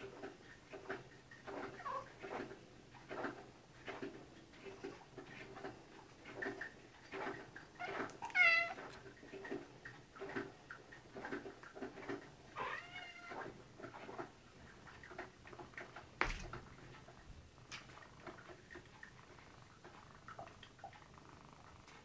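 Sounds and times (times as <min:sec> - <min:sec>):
cat meowing: 0:07.8 - 0:08.8, 0:12.6 - 0:13.4.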